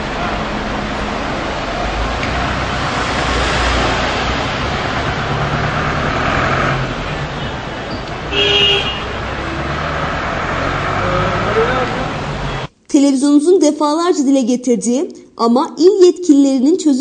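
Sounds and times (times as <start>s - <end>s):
minibus engine pulling away: 0.0s - 12.7s
street traffic noise: 0.0s - 12.8s
vehicle horn toot: 8.3s - 9.3s.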